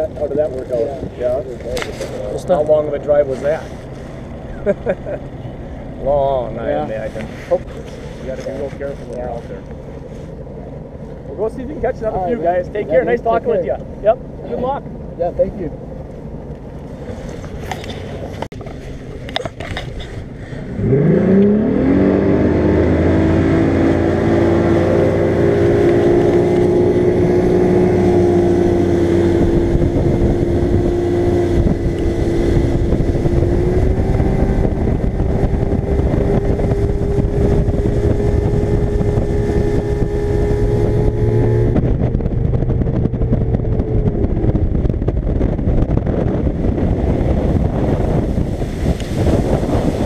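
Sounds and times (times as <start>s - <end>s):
outboard motor revving: 20.6s - 50.0s.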